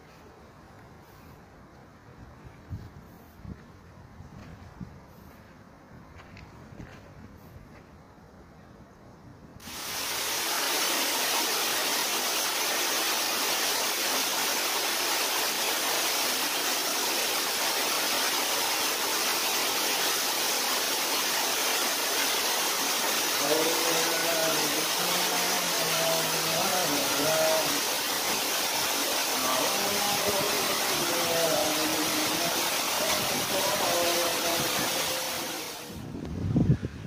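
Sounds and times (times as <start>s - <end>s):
loud steady hiss: 9.6s - 37.0s.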